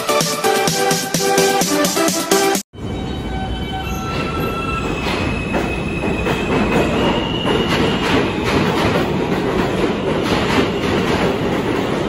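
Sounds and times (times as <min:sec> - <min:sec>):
subway train wheels rumbling: 0:02.7 - 0:12.0.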